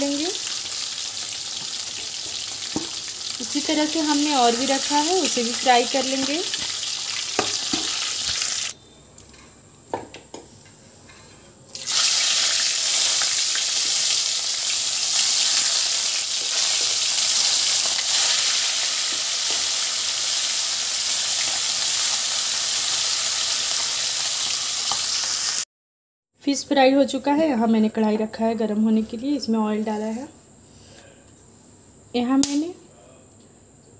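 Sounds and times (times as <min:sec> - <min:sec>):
fish sizzling in hot oil: 0:00.0 - 0:08.8, 0:11.7 - 0:25.6.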